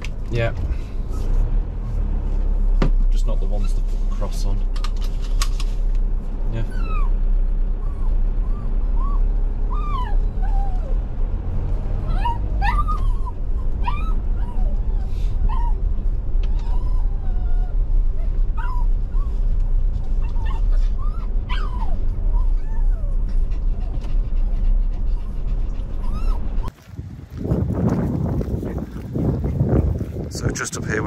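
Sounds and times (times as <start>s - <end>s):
steady low rumble: 0.0s - 31.0s
dog whining and yipping: 6.6s - 11.0s, 12.0s - 26.7s.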